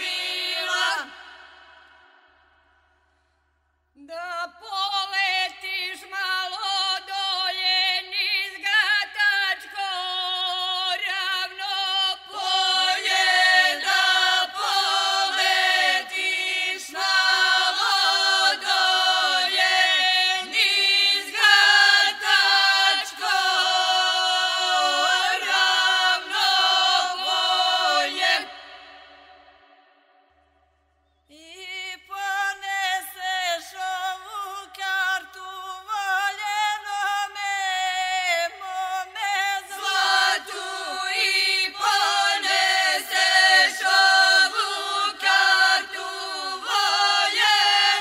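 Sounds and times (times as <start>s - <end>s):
group singing unaccompanied: 0.0s - 2.4s, 9.6s - 29.8s, 37.6s - 48.0s.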